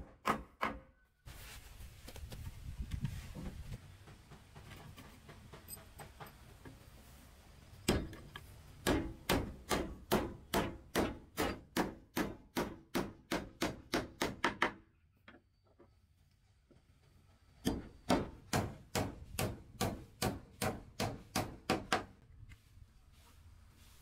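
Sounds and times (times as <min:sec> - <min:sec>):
hammer hitting nail into wood: 0:08.8 - 0:14.8, 0:17.6 - 0:22.1.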